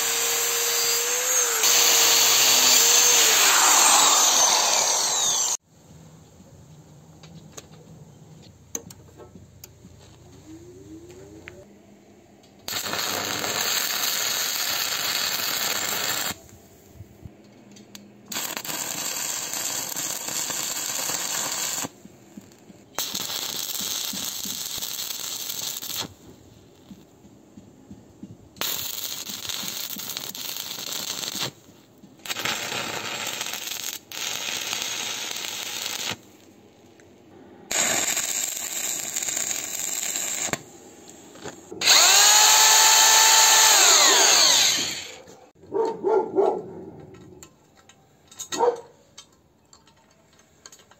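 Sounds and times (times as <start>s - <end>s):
arc welding crackle: 0.0s - 5.6s, 12.7s - 16.4s, 18.3s - 27.0s, 28.6s - 36.6s, 37.7s - 45.1s.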